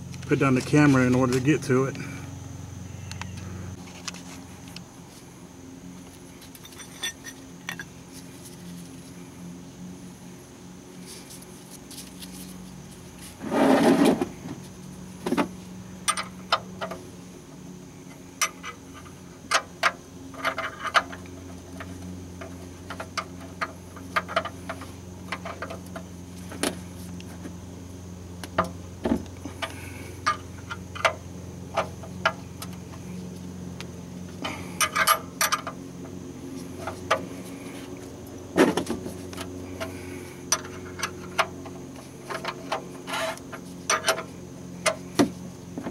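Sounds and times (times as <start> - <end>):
metal clatter: 6.5 - 7.9.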